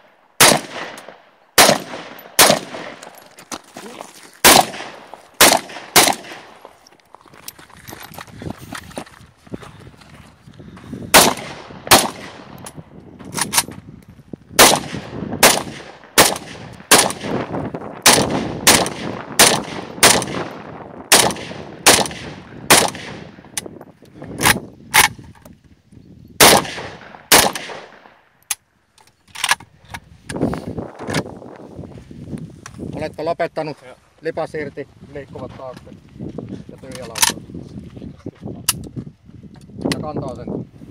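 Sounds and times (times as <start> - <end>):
rifle shots: 0.4 - 3.1, 4.4 - 6.7, 11.1 - 12.6, 14.6 - 23.4, 26.4 - 28.2.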